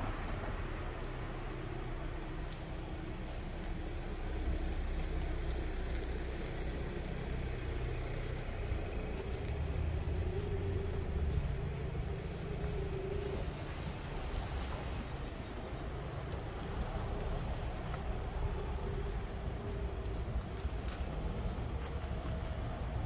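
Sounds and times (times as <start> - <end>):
city traffic noise: 0.0 - 23.0.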